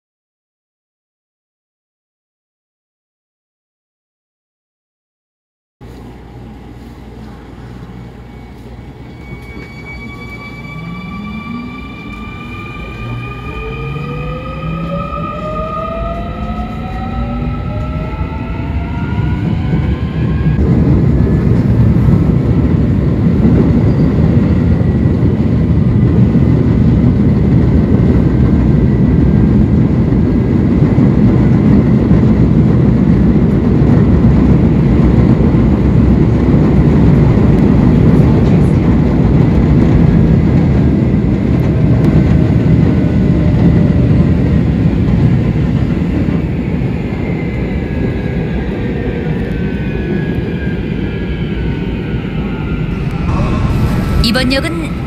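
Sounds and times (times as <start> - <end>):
train wheels rumbling on rail: 5.8 - 55.0
traction motors whining: 7.8 - 20.6.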